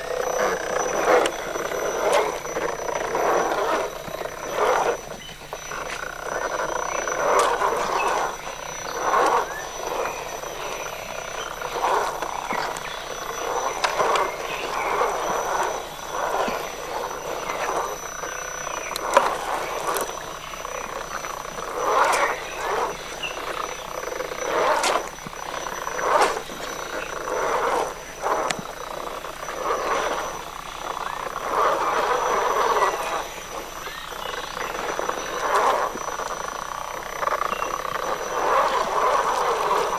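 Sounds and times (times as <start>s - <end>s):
rc truck motor whirring: 0.2s - 5.0s.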